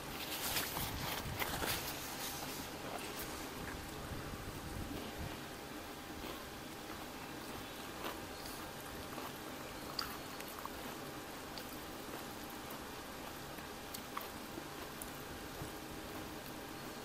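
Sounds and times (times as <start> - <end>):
wet chewing and slurping: 0.0 - 16.9.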